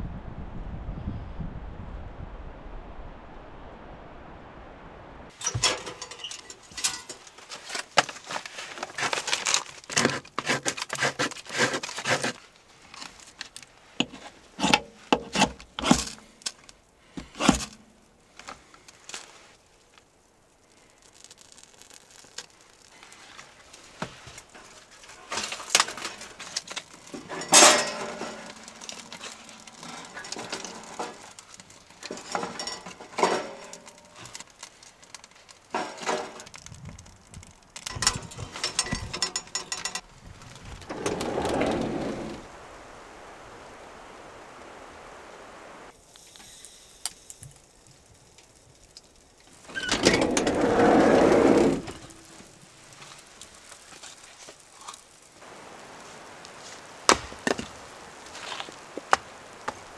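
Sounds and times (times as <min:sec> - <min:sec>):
objects clinking and knocking: 0:05.4 - 0:10.2, 0:25.3 - 0:34.5, 0:37.8 - 0:40.1.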